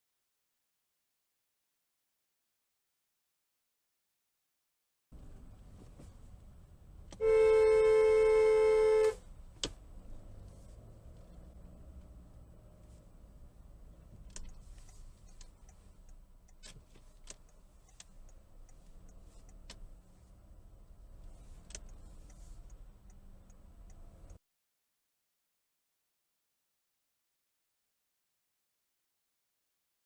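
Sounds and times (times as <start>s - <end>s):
car engine and road rumble: 5.1s - 24.4s
sharp clicks and ticks: 14.1s - 20.0s, 21.2s - 24.4s.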